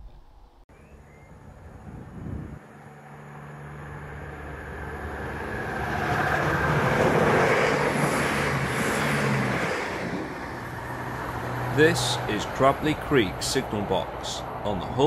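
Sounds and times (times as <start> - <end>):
low engine hum: 0.0 - 15.0
train wheel and rail noise: 3.2 - 15.0.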